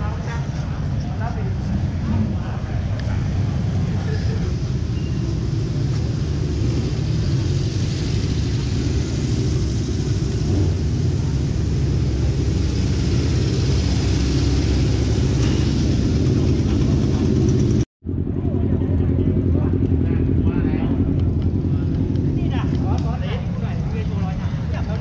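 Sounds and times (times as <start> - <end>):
vehicle engines rumbling: 0.0 - 25.0.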